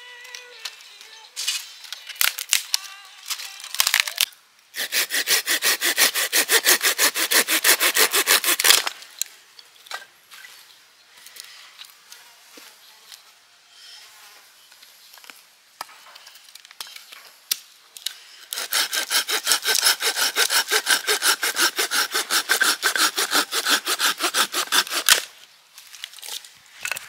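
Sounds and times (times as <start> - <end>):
hand saw cutting a branch: 4.8 - 8.9, 18.4 - 25.3.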